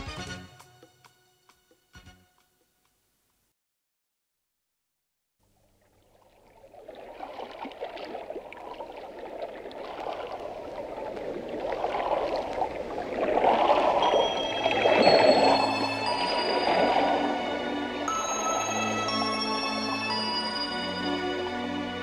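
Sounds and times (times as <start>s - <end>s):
running water stream: 5.4s - 22.0s
high chime-like notes: 13.7s - 22.0s.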